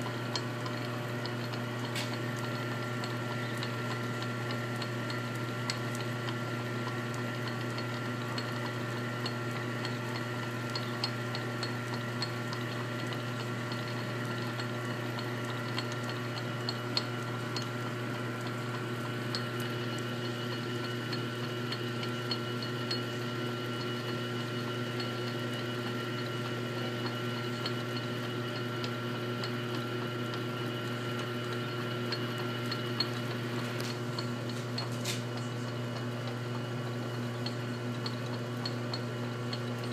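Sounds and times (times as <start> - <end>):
metal lathe running: 0.0 - 39.9.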